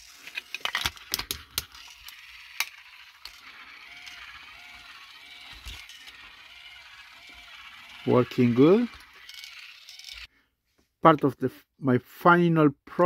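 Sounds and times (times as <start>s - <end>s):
toy train motor running: 0.0s - 10.3s.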